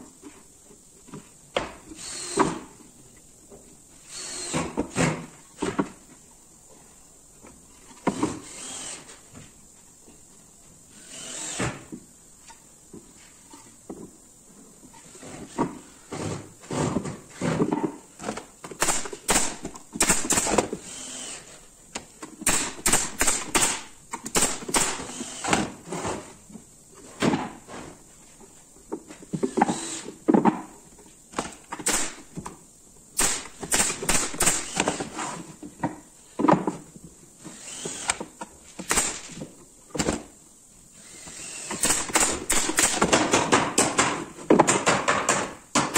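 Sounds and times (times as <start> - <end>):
wooden boards knocking and clattering: 42.9 - 45.9.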